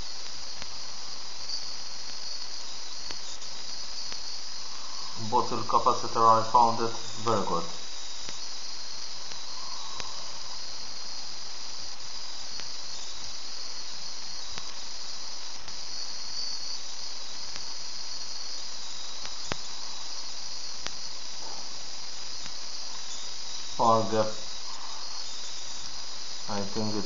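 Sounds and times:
sharp spark clicks: 0.0 - 25.8
high-pitched electrical hiss: 0.0 - 27.0.

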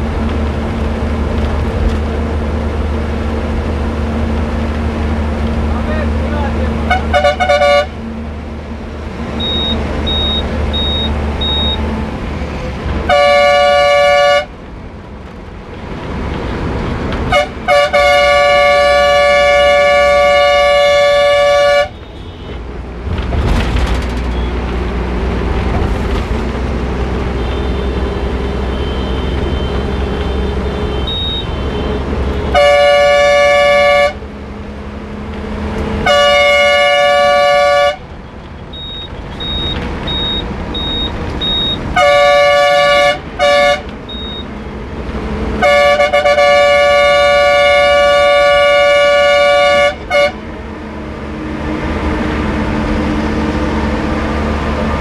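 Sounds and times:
bus engine droning: 0.0 - 55.0
bus horn blasts: 6.8 - 8.0, 13.0 - 14.6, 17.3 - 22.6, 27.2 - 34.3, 36.0 - 38.1, 41.4 - 44.4, 45.6 - 50.5.

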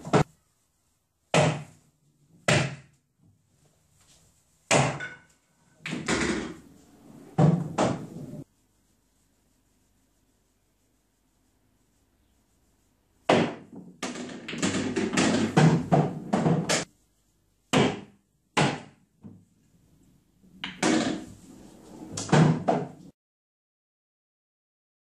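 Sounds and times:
pool balls clacking: 13.3 - 16.9, 20.6 - 21.4.

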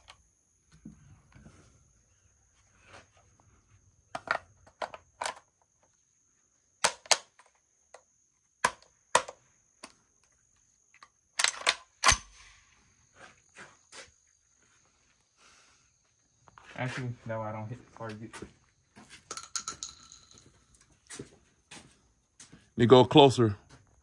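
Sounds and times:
shotgun being handled and loaded: 4.1 - 5.9, 6.8 - 10.3, 10.9 - 12.3, 19.3 - 20.9.

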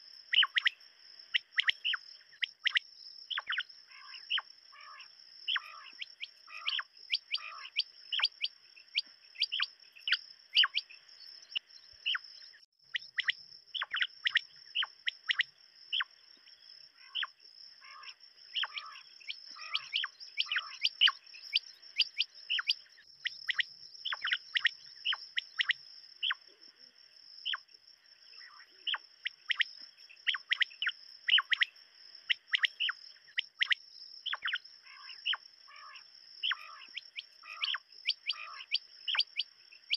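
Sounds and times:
quail calling: 0.3 - 10.9, 17.0 - 22.8, 30.3 - 31.7, 32.3 - 39.9.

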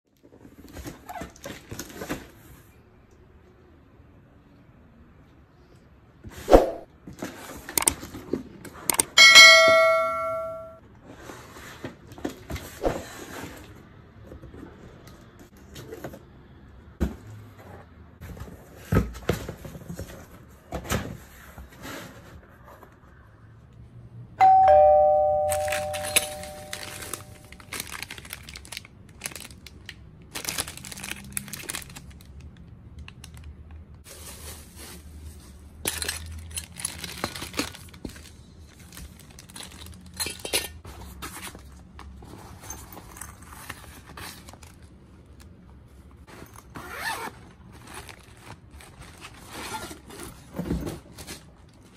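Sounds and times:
cardboard and plastic rustling: 0.2 - 2.7, 17.0 - 23.0, 25.4 - 51.9
bell-like ding: 9.2 - 10.8, 24.4 - 27.6.

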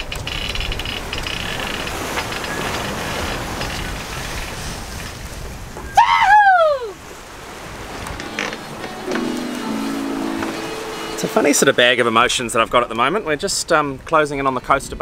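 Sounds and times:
sea rushing: 0.0 - 14.0
wind: 0.0 - 15.0
person whooping cheer: 6.0 - 7.0.

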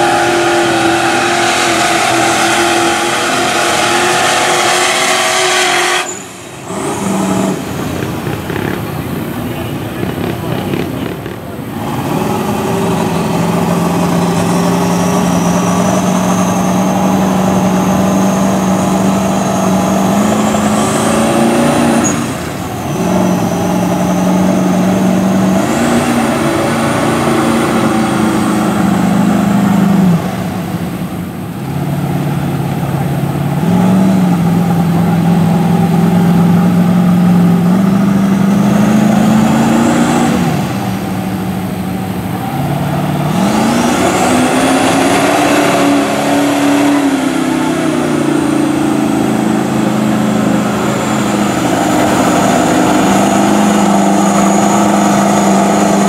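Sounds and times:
truck engine revving in mud: 0.0 - 56.0
turbo whistle: 1.9 - 7.6.

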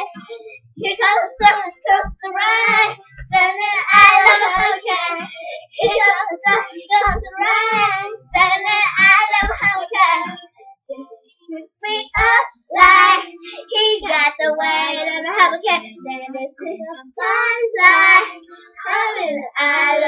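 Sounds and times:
young girls singing: 0.0 - 20.0
low thumps: 0.9 - 10.0.

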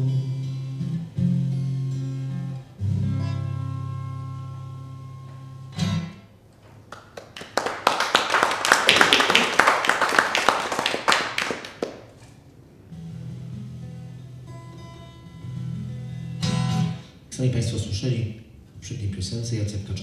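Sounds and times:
acoustic guitar chords: 0.0 - 6.5, 11.6 - 18.8
audience applauding: 6.9 - 12.2.

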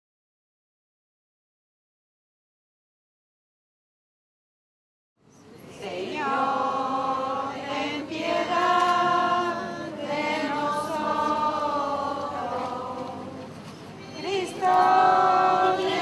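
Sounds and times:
group singing a prayer: 5.5 - 16.0.

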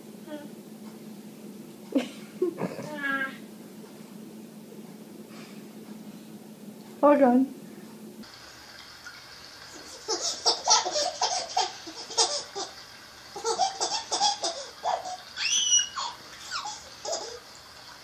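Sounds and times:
baby giggling: 2.0 - 3.4, 9.8 - 12.8, 13.4 - 17.5
baby squealing: 13.9 - 17.4.

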